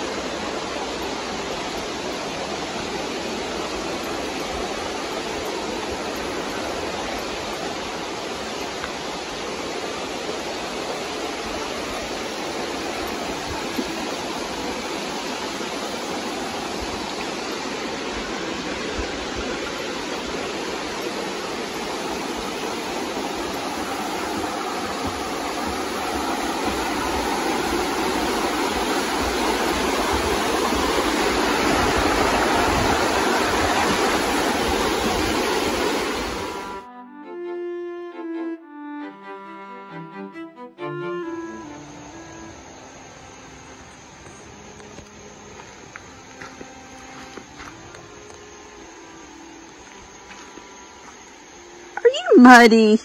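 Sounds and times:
stream rushing over rocks: 0:00.0 - 0:36.8, 0:41.8 - 0:52.9.

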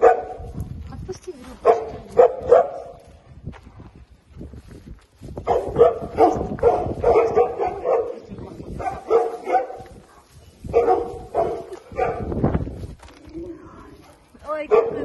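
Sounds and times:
small dog barking: 0:00.0 - 0:00.5, 0:01.6 - 0:03.0, 0:05.4 - 0:09.9, 0:10.7 - 0:12.3, 0:14.7 - 0:15.0.

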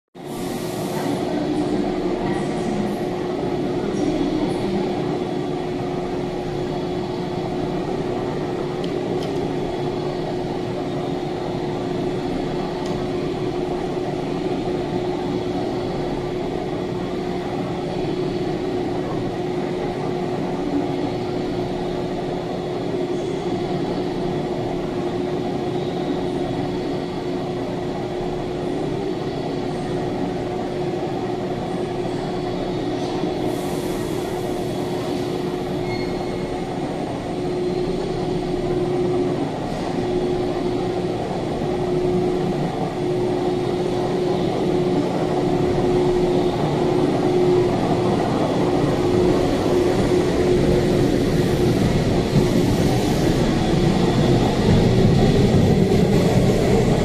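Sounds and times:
electric train humming: 0:00.3 - 0:57.0.

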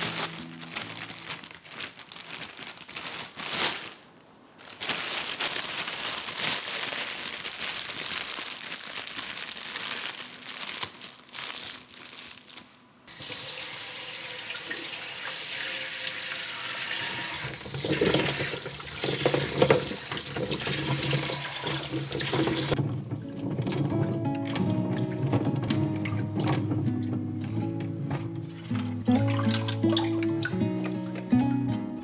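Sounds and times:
plastic bag crinkling: 0:00.0 - 0:13.2, 0:17.4 - 0:25.7
tap water running into bowl: 0:13.1 - 0:22.8
water churning with fruit: 0:17.2 - 0:23.7
background music: 0:22.8 - 0:32.0.

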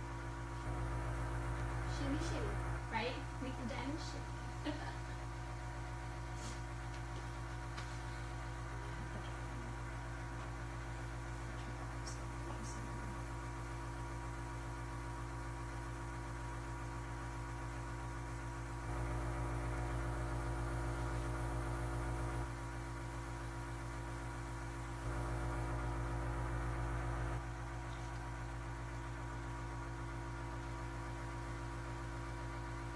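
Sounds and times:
airbrush compressor humming: 0:18.7 - 0:29.8.

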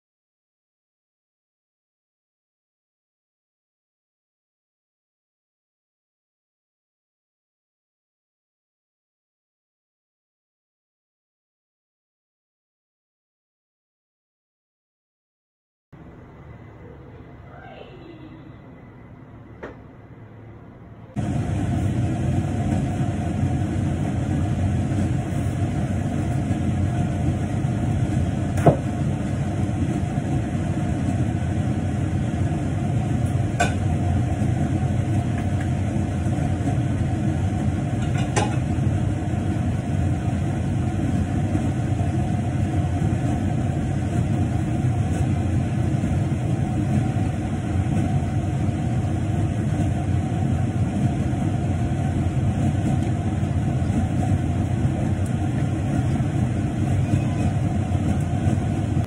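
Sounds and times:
range hood fan humming: 0:16.0 - 0:59.0.

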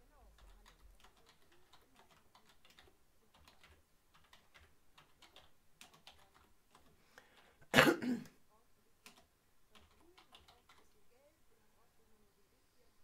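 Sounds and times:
typing on a keyboard: 0:00.3 - 0:07.5, 0:09.0 - 0:11.0.

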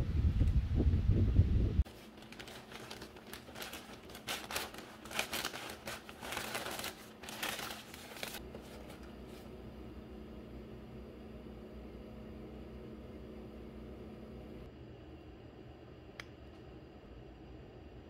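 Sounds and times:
plastic mailer crinkling: 0:01.8 - 0:09.5.

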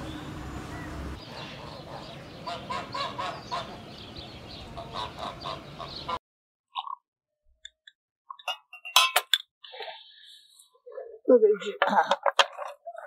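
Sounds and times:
geese honking: 0:00.8 - 0:03.9, 0:04.6 - 0:06.2
glass clink: 0:08.5 - 0:09.4.

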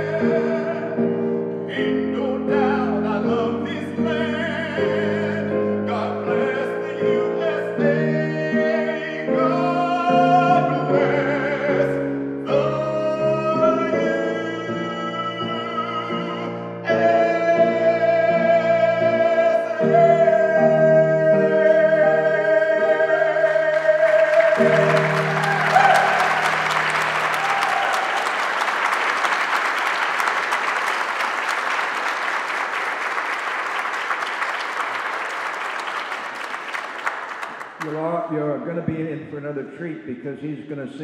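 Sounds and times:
man singing: 0:00.0 - 0:27.0
instrumental accompaniment: 0:00.0 - 0:27.8
audience applause: 0:23.4 - 0:38.1.

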